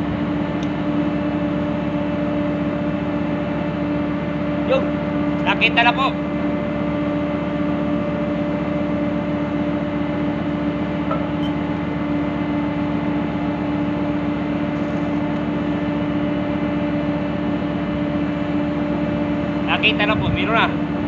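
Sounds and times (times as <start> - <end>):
ship machinery drone: 0.0 - 21.0.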